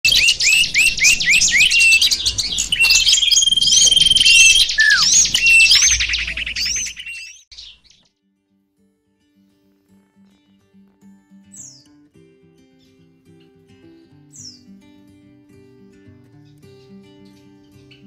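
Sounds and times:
songbird chirping and trilling: 0.0s - 8.0s, 11.5s - 12.0s, 12.8s - 14.8s.

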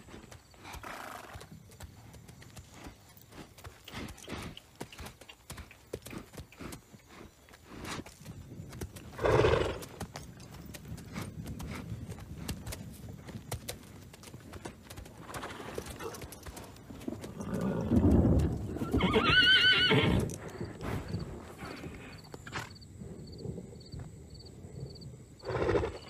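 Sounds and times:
horse hooves clopping: 0.0s - 22.7s
horse neighing: 9.2s - 9.8s, 18.7s - 20.3s.

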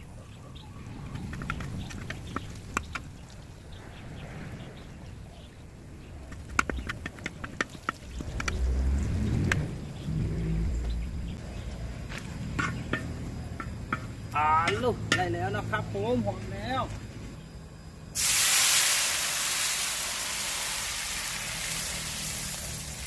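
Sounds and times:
low rumble: 8.1s - 16.4s
metal spoon scraping a wok: 12.6s - 14.1s
garlic frying in oil: 18.2s - 23.0s.

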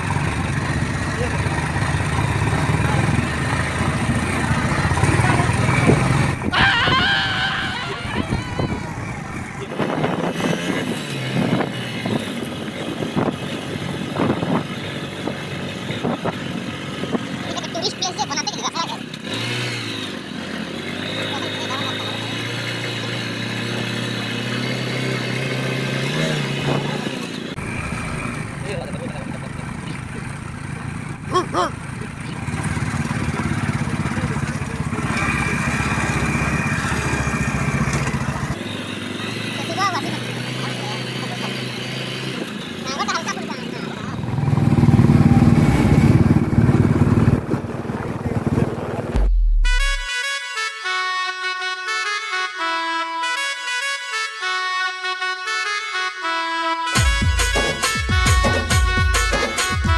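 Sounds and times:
motorcycle riding on gravel: 0.0s - 6.6s, 18.7s - 49.2s.

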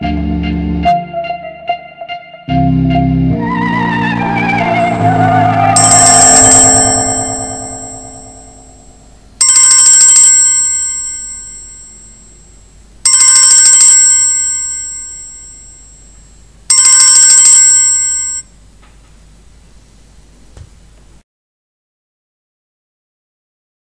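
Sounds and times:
phone ringtone bell-like ring: 5.7s - 18.5s.

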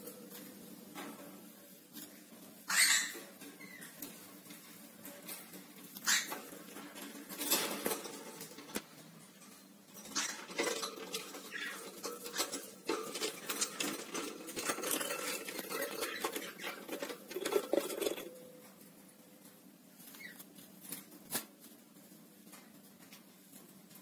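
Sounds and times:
claws clicking on metal bars: 3.4s - 18.4s
bird flapping in cage: 4.0s - 18.4s.

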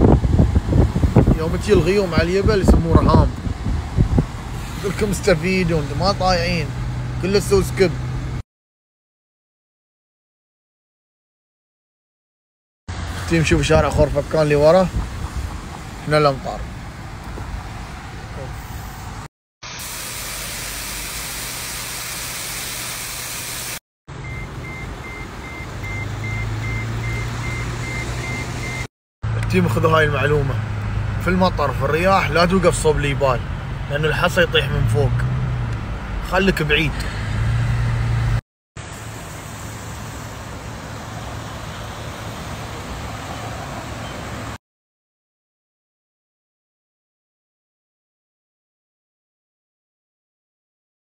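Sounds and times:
car engine and road hum: 0.0s - 8.4s, 12.9s - 44.6s
high electronic beeps: 24.2s - 28.9s
floodwater roaring: 38.8s - 44.6s.

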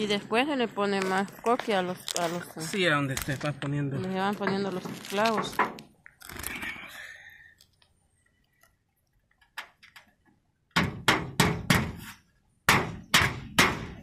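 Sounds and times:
hammer driving nails into roof: 10.7s - 14.0s.

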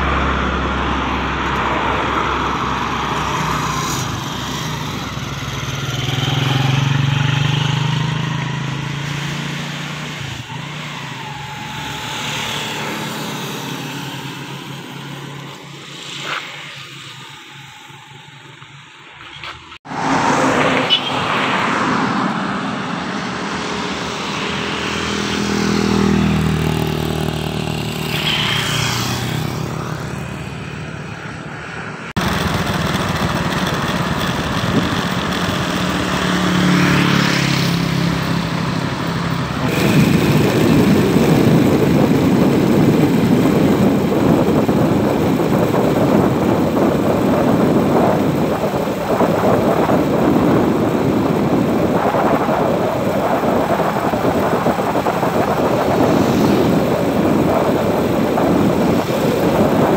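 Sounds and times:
engine tyre and wind rush: 0.0s - 59.9s
vehicles passing on road: 0.0s - 59.9s.

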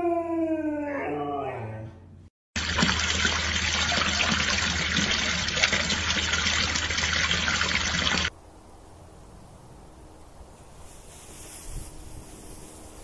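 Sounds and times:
fountain water splashing: 2.6s - 8.3s
faint hiss: 10.6s - 13.0s.

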